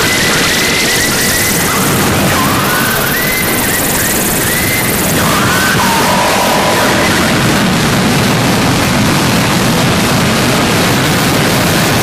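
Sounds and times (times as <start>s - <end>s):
whistling feedback tones: 0.0s - 7.6s
harsh noise music static: 0.0s - 12.0s.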